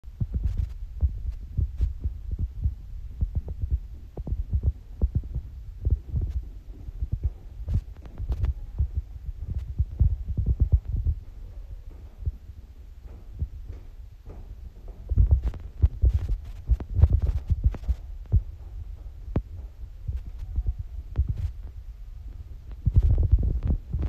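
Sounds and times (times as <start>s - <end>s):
footsteps on wooden stairs: 5.9s - 20.4s.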